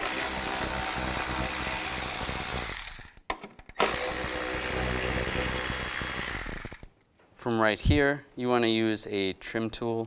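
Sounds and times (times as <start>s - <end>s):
power driver spinning screws: 0.0s - 7.0s.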